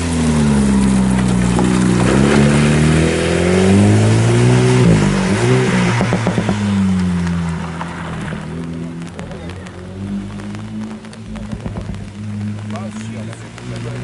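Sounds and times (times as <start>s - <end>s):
hiss of rain and spray: 0.0s - 14.0s
rally car engine accelerating: 0.0s - 14.0s
sharp exhaust pops: 4.0s - 14.0s.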